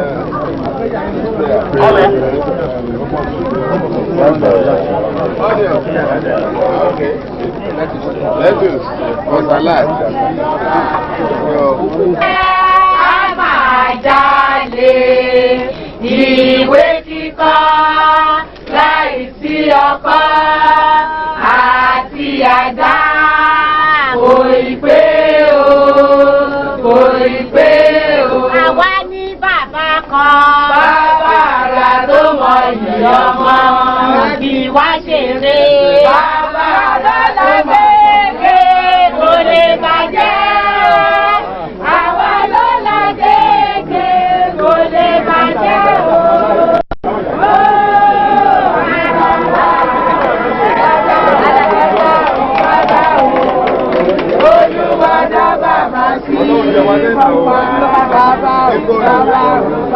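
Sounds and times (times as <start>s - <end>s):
group of voices singing: 12.2s - 59.9s.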